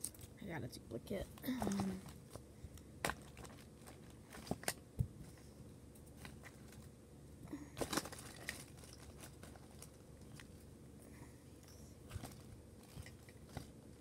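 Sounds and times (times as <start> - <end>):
toys clicking and rustling: 7.8 - 10.6, 11.6 - 13.8.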